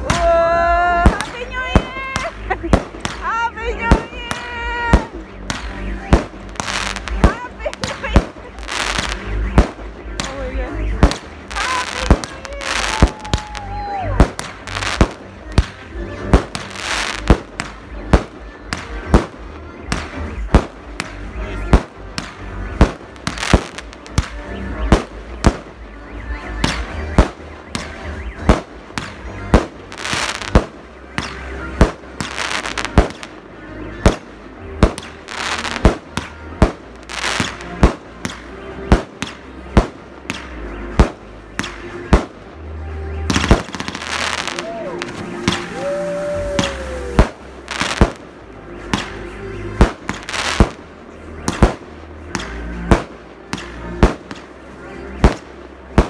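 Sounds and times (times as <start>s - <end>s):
fireworks bangs: 0.0s - 42.5s, 43.2s - 56.0s
fireworks crackling: 0.0s - 56.0s.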